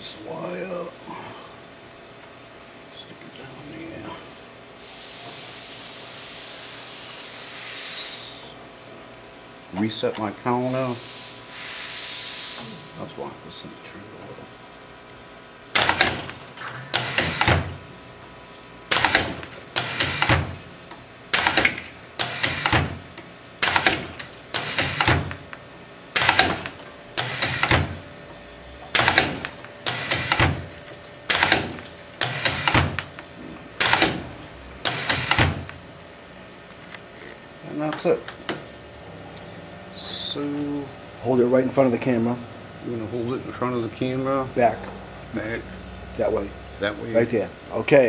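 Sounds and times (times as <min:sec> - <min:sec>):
wire winding machine strokes: 0:26.2 - 0:27.9, 0:28.9 - 0:32.9.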